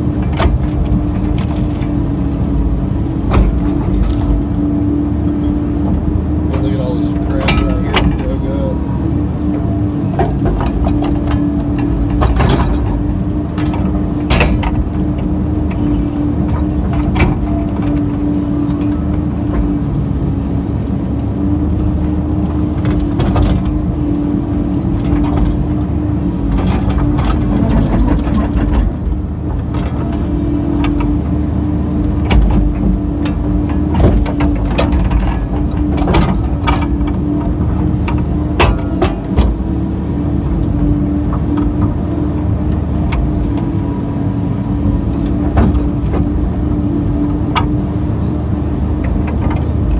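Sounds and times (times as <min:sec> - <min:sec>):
excavator engine and hydraulics: 0:00.0 - 0:49.9.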